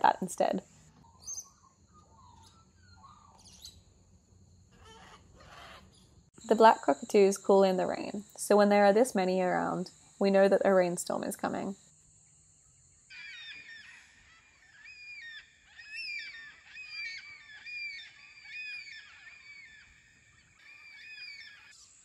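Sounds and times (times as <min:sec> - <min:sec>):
cockatoos calling: 0:04.8 - 0:06.0, 0:13.1 - 0:21.8.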